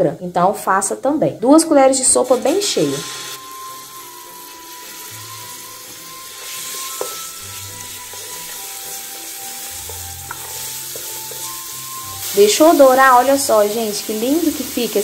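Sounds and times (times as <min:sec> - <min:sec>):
paste sizzling in hot oil: 0:02.2 - 0:15.0
wooden spoon stirring: 0:05.8 - 0:13.6.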